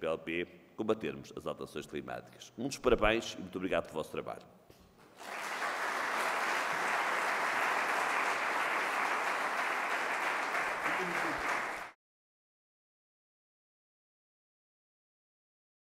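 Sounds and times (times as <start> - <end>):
audience applauding: 5.1 - 12.0.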